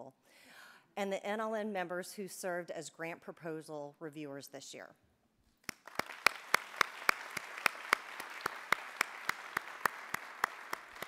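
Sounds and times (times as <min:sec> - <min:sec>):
close sharp hand claps: 0:05.6 - 0:11.0
audience applauding: 0:05.7 - 0:11.0.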